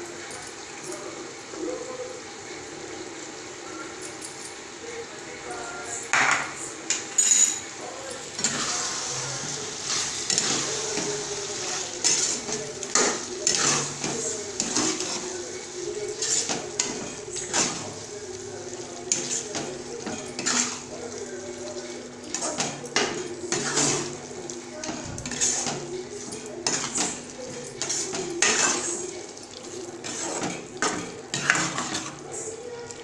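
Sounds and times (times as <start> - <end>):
metal spatula scraping a pan: 8.4 - 18.0, 19.0 - 20.9, 22.3 - 24.2, 24.8 - 29.1, 30.0 - 32.2.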